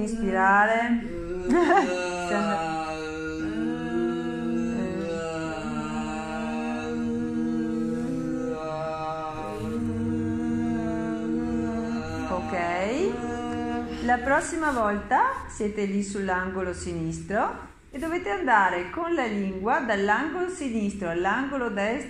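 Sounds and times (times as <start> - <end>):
woman holding vocal tone: 0.0 - 2.6.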